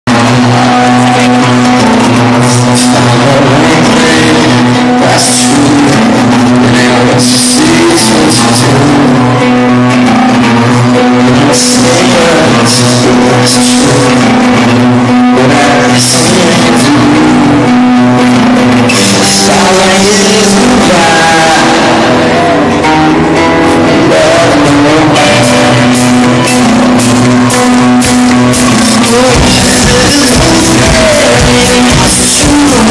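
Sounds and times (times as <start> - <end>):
person singing lead vocals: 0.0 - 32.9
acoustic guitar: 0.1 - 32.9
steady drum beat: 24.6 - 32.9.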